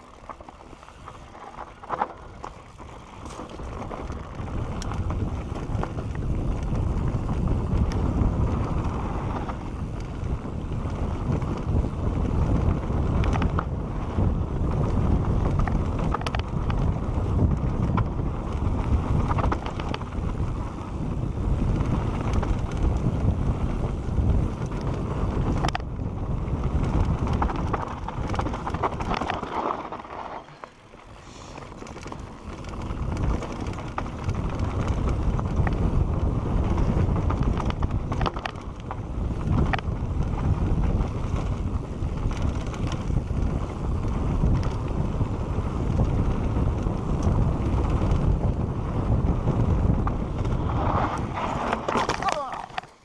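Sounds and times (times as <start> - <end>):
tyre rumble on dirt: 0.0 - 9.8, 26.4 - 38.5, 39.2 - 53.0
bike knocks and rattles: 0.0 - 53.0
wind rushing over microphone: 0.0 - 53.0.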